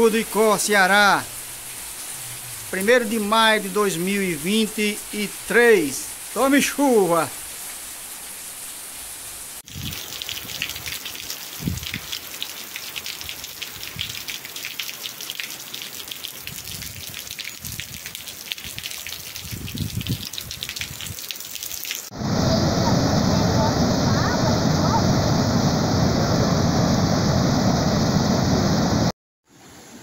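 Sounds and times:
rain falling on wet ground: 0.0s - 22.2s.

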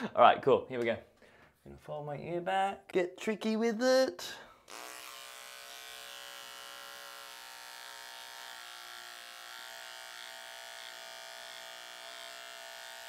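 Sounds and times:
beard trimmer buzzing: 4.7s - 13.0s.

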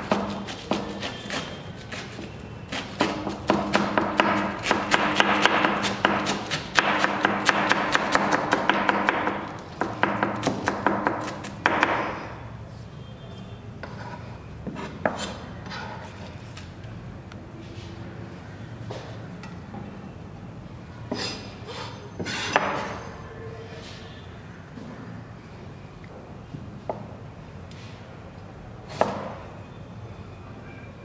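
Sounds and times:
knife shredding cabbage: 0.0s - 8.7s.

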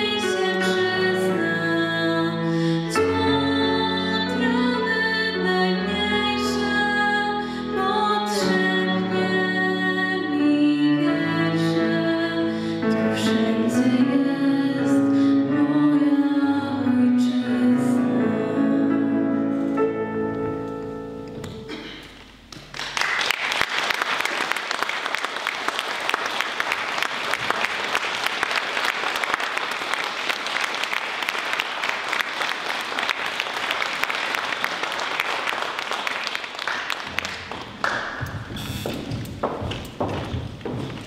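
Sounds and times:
slow music: 0.0s - 22.5s
audience clapping: 22.0s - 41.0s.

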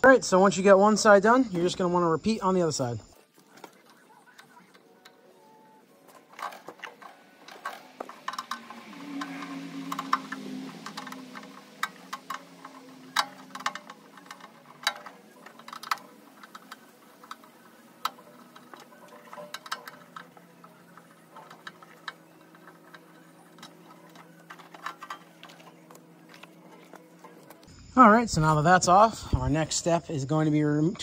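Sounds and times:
faint steady hum: 0.0s - 31.0s
small screws clinking: 6.0s - 27.7s.

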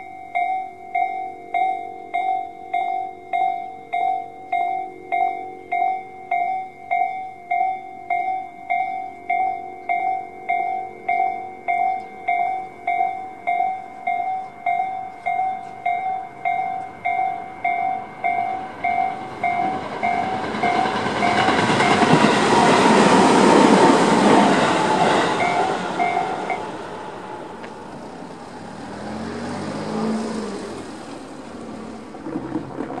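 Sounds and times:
level crossing warning bell: 0.0s - 32.2s
electric train passing: 0.0s - 33.0s
faint car engine: 26.0s - 32.6s.

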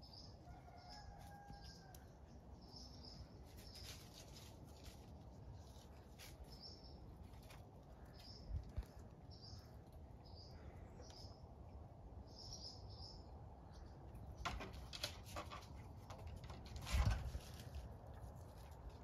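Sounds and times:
small birds chirping: 0.0s - 15.0s
scuffling and scraping: 3.2s - 9.3s, 14.4s - 19.0s.

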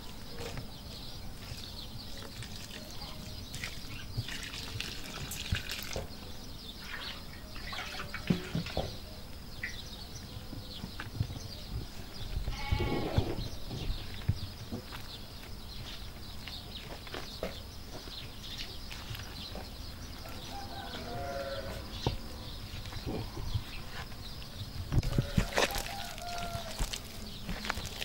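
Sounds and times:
livestock bleating: 12.5s - 13.3s, 21.0s - 22.0s
hands kneading dough: 25.0s - 28.0s.

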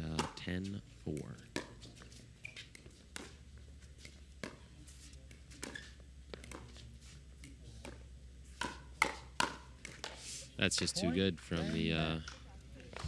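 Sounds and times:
paddles hitting plastic ball: 7.4s - 10.2s.

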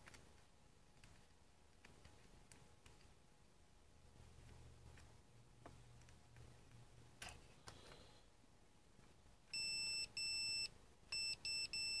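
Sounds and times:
multimeter continuity beeps: 9.5s - 12.0s.

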